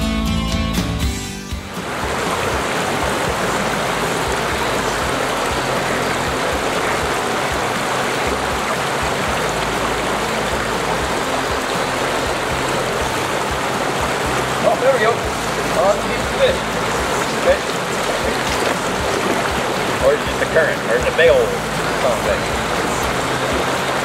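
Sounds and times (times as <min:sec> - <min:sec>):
water rushing over rocks: 0:01.6 - 0:24.0.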